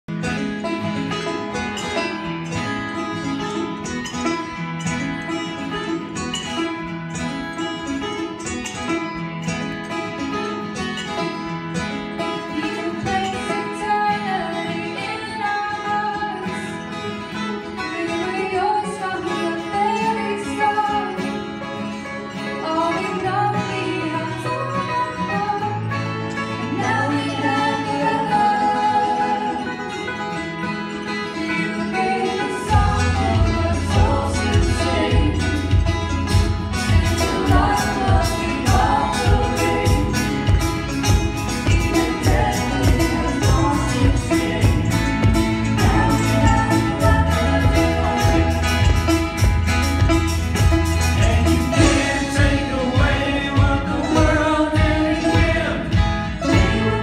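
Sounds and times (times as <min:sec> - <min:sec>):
electric guitar: 0:00.1 - 0:57.0
keyboard: 0:00.1 - 0:57.0
girl singing: 0:12.5 - 0:16.5.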